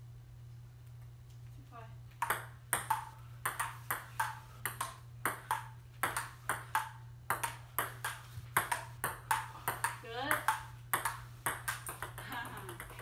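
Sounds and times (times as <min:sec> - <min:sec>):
ping pong ball clicking: 0:02.2 - 0:13.0.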